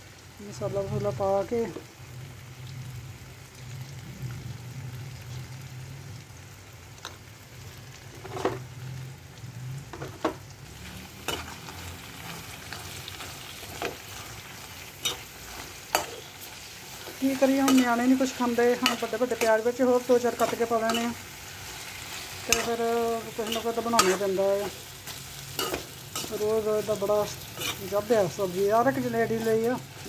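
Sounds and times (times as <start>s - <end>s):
food sizzling in a pan: 0.0s - 30.0s
spatula scraping a pan: 11.2s - 30.0s.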